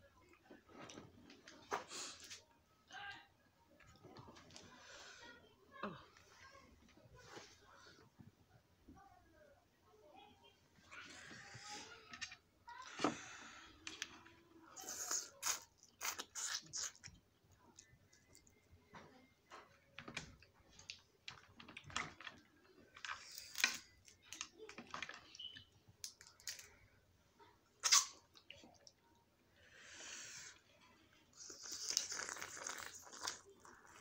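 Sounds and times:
chewing and slurping: 0:31.4 - 0:34.0.

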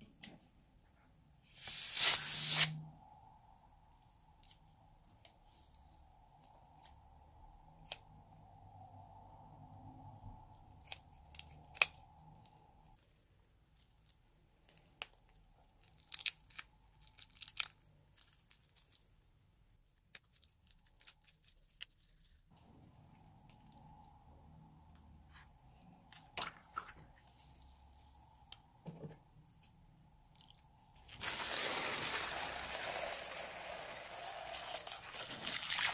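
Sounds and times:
rubber balloon crinkling: 0:30.9 - 0:35.9.

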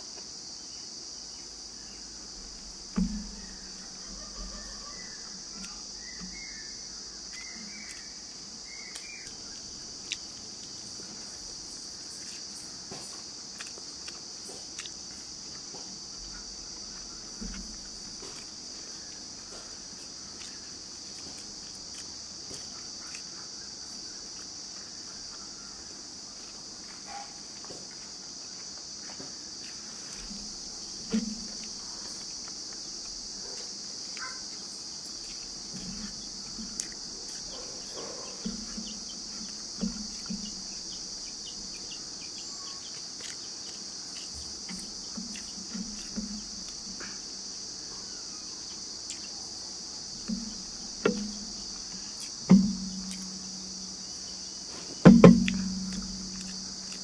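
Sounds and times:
insects chirring: 0:00.0 - 0:57.0
clicks and smacks of eating: 0:08.8 - 0:10.8, 0:12.2 - 0:19.3, 0:31.1 - 0:40.6, 0:42.8 - 0:47.3, 0:55.2 - 0:57.0.

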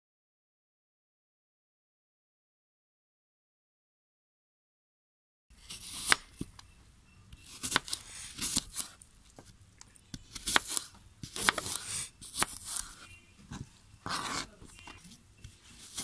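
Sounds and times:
knife chopping apple on board: 0:05.7 - 0:06.5, 0:10.2 - 0:14.7.

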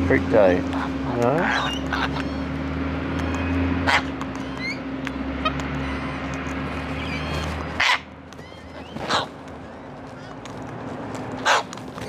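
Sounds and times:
cockatoos screeching: 0:00.8 - 0:02.6, 0:03.3 - 0:10.4.

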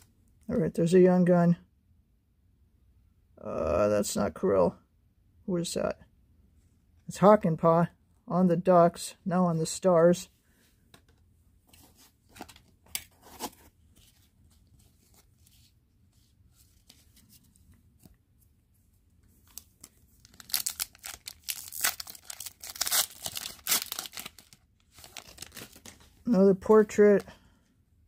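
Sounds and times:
foil wrapper crinkling and tearing: 0:19.5 - 0:26.2.

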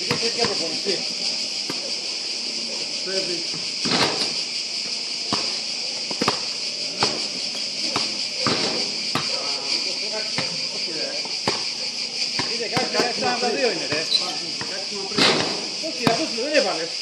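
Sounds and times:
basketball bouncing: 0:00.0 - 0:00.8, 0:05.3 - 0:07.2, 0:07.9 - 0:09.4, 0:11.4 - 0:11.7, 0:12.4 - 0:13.1
insects chirping: 0:00.0 - 0:17.0.

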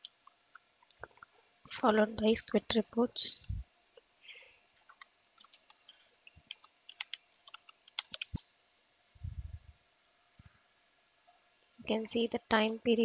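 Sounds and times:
light keyboard typing: 0:04.9 - 0:08.4.

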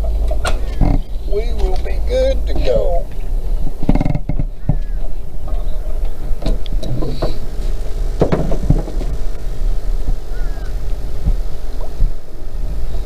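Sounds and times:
outboard motor rumbling: 0:00.0 - 0:13.0
knocks from gear on boat: 0:03.8 - 0:07.4, 0:08.2 - 0:09.2.

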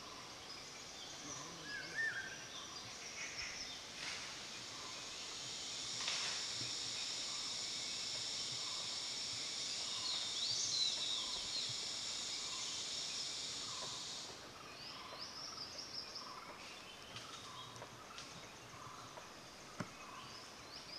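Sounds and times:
high-pitched insect drone: 0:00.0 - 0:16.5.

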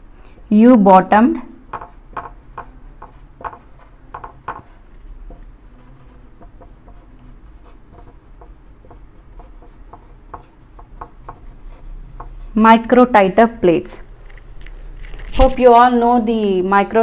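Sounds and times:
marker pen on whiteboard: 0:01.4 - 0:14.0.

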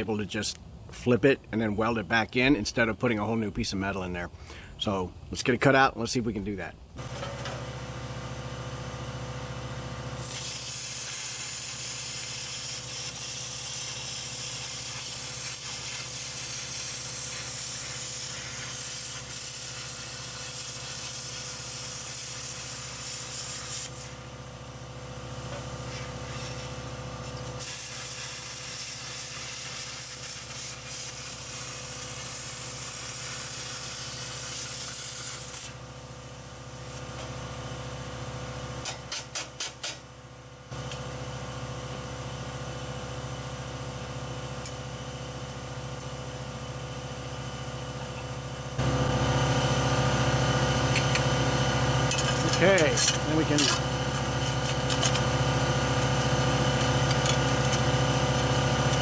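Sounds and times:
grinder running unloaded: 0:07.0 - 0:12.1, 0:48.0 - 0:59.0
angle grinder cutting steel: 0:50.3 - 0:59.0.

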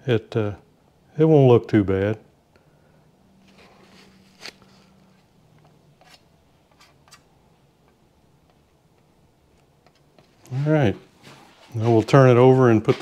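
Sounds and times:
low steady hum: 0:00.0 - 0:13.0
rag rubbing on metal: 0:11.7 - 0:13.0.

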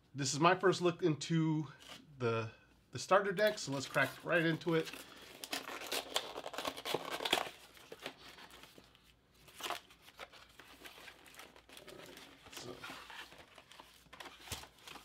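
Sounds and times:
packaging crinkling and tearing: 0:03.7 - 0:15.0.

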